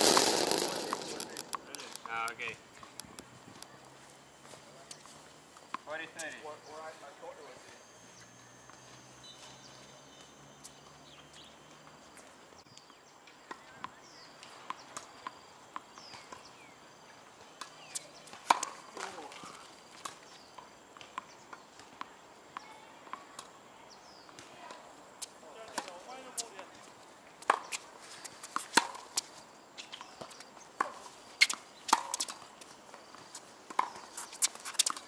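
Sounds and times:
tennis ball bouncing on court: 30.2 - 32.4, 33.7 - 35.0.

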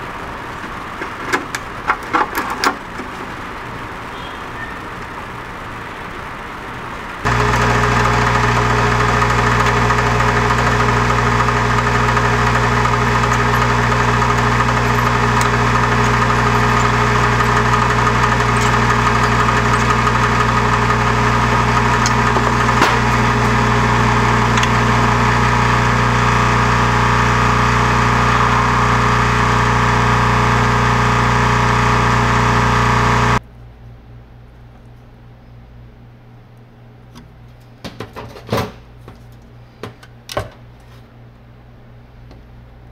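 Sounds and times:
electric rotary tool running: 7.3 - 33.4.

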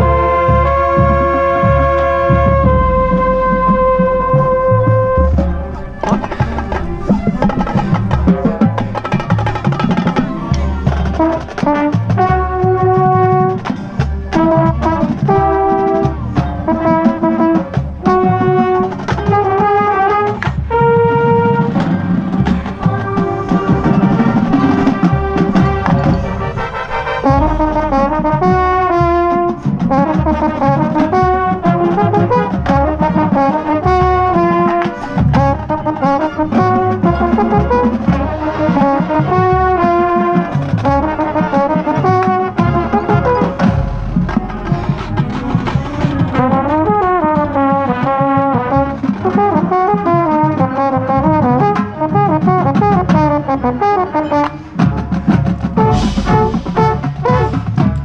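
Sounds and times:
brass chords: 0.0 - 58.0
drum beats: 0.0 - 58.0
mellophone playing loud and close: 22.3 - 29.6.

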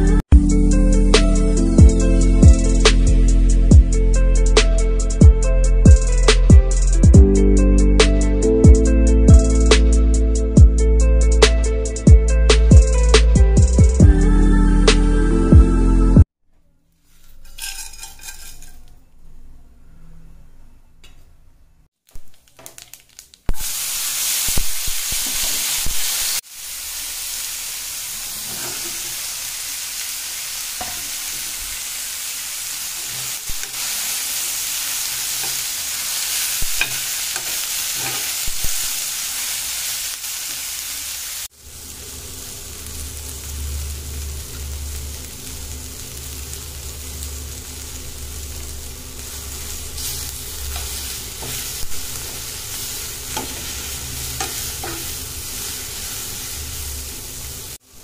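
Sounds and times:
metal spatula scraping pan: 17.1 - 19.1, 28.2 - 29.2, 36.4 - 38.5, 50.0 - 56.5
food sizzling in oil: 17.3 - 18.9, 22.2 - 58.0.

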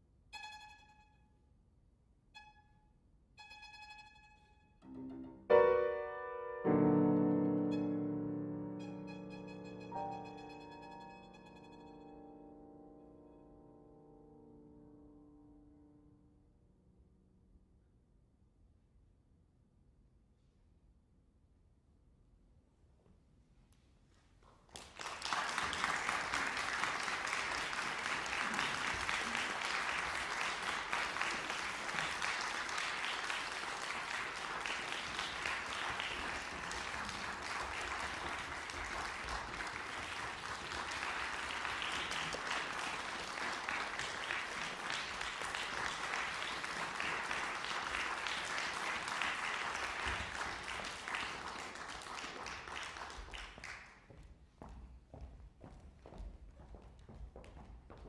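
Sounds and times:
audience applauding: 24.6 - 54.1.

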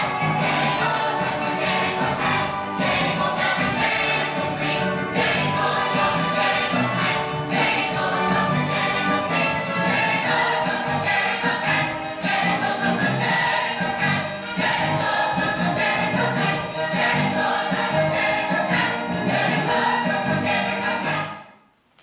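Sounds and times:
chorus of young voices singing: 0.0 - 21.5.

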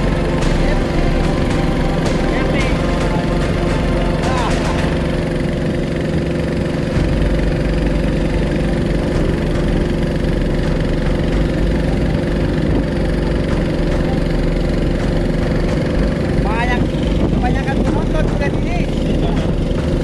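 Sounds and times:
boat engine idling: 0.0 - 20.0.

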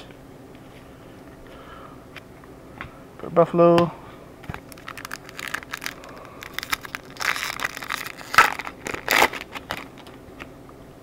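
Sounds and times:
foil wrapper crinkling: 4.5 - 10.2.

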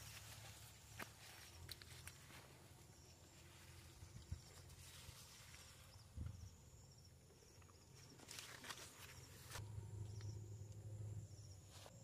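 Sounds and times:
tent fabric handling: 8.1 - 9.6.

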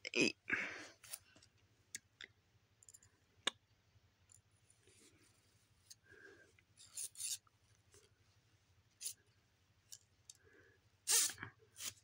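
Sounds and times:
metal straws rubbing and scraping: 6.8 - 7.5, 11.1 - 12.0.

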